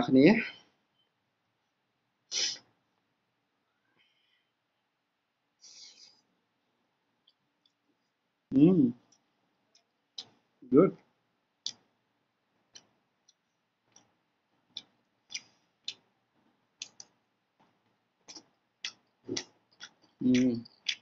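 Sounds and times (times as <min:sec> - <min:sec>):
wet mouth clicks and lip smacks: 0:14.7 - 0:16.0, 0:16.8 - 0:17.2, 0:18.3 - 0:21.0.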